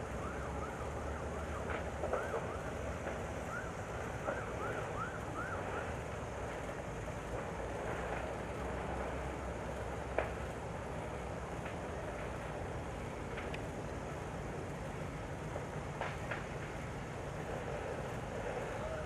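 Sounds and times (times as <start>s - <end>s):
faint siren yelping: 0.0s - 6.1s
sharp pops: 1.6s - 3.3s.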